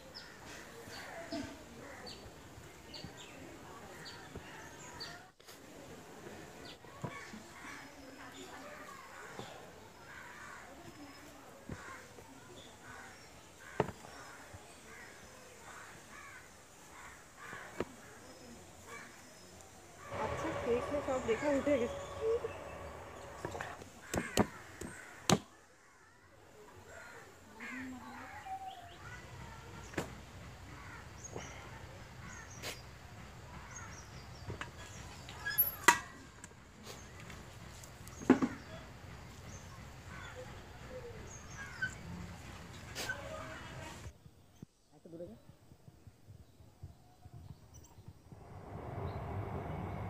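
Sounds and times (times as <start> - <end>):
small birds chirping: 36.8 - 48.4.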